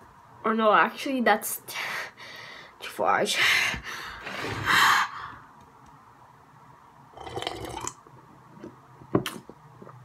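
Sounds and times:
boy gulping water: 0:07.2 - 0:10.0.

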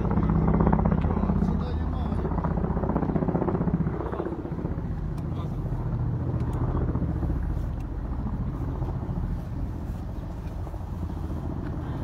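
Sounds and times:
helicopter rotors chopping drone: 0:00.0 - 0:12.0.

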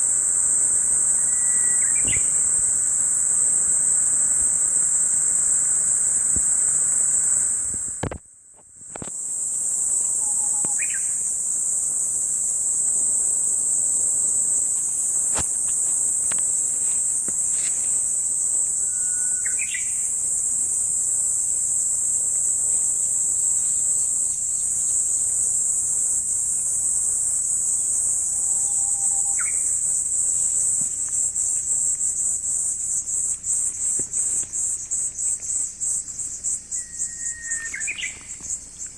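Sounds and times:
insects shrilling: 0:00.0 - 0:08.2, 0:08.9 - 0:38.9
bird chirping: 0:01.2 - 0:02.6.

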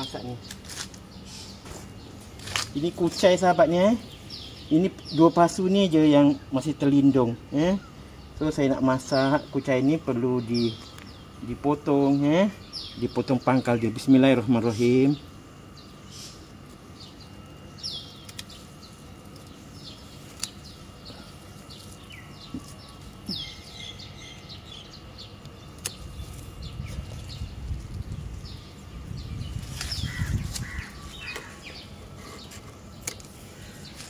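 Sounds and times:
leaves rustling: 0:00.0 - 0:04.4, 0:18.2 - 0:24.9, 0:25.6 - 0:34.0
small birds chirping: 0:00.0 - 0:34.0
pruning shears snipping: 0:02.4 - 0:03.2, 0:18.2 - 0:18.6, 0:19.3 - 0:20.8, 0:25.4 - 0:27.1, 0:29.6 - 0:31.5, 0:32.5 - 0:34.0.

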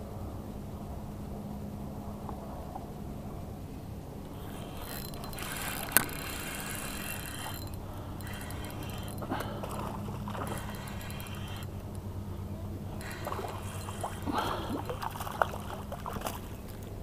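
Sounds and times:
steady low hum: 0:00.0 - 0:17.0
fishing reel whirring and ratcheting: 0:04.2 - 0:12.0, 0:12.9 - 0:15.8.

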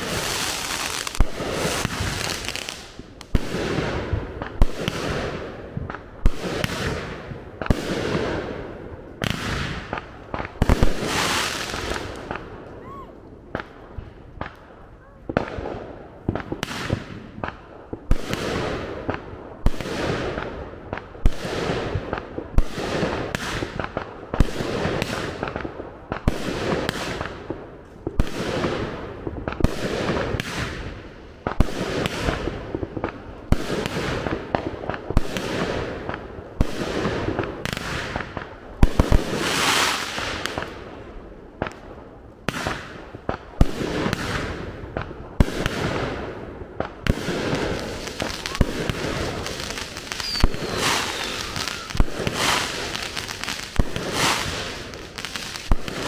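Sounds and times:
firework bangs with crackling: 0:00.0 - 0:56.0.

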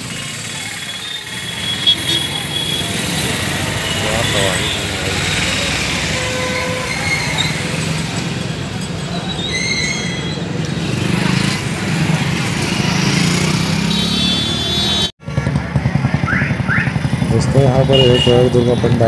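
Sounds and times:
road noise: 0:00.0 - 0:19.0
traffic engines rumbling: 0:00.0 - 0:19.0.

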